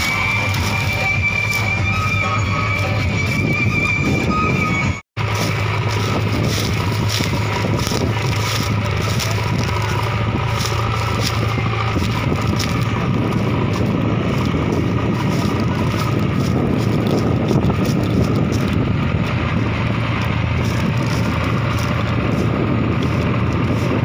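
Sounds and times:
diesel engines under heavy load: 0.0 - 24.0
wind buffeting microphone: 0.0 - 24.0.

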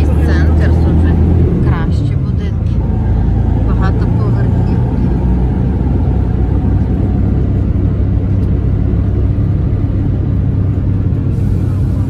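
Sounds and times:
vehicle engine and road rumble: 0.0 - 12.0.

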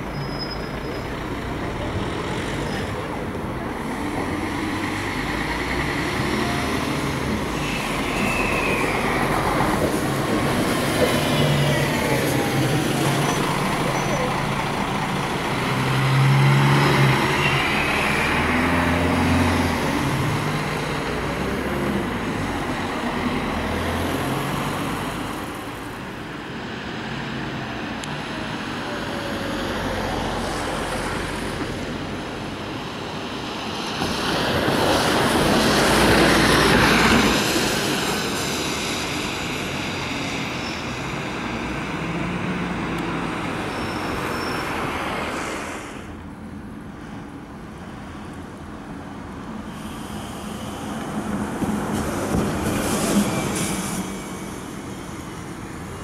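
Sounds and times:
big engine pulling away: 0.0 - 25.3
heavy vehicles passing: 0.0 - 56.0.

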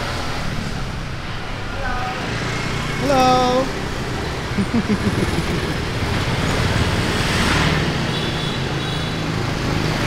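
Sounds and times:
passing traffic rush: 0.0 - 10.0
vehicle engine running: 4.4 - 7.1.

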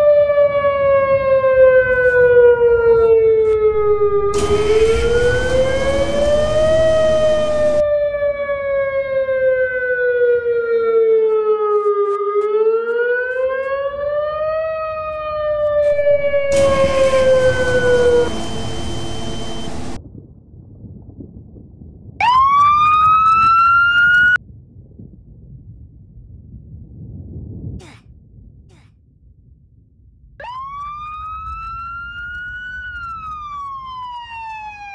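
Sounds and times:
warning siren wailing: 0.0 - 20.0, 22.2 - 24.4, 30.4 - 34.9
loud rushing noise: 3.6 - 7.8, 15.9 - 20.0.

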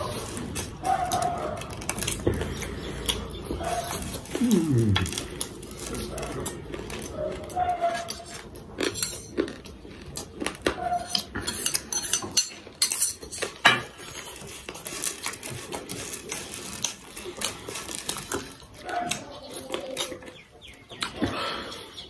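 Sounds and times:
close chewing: 0.0 - 22.0
metal spoon scraping metal bowl: 11.0 - 14.3.

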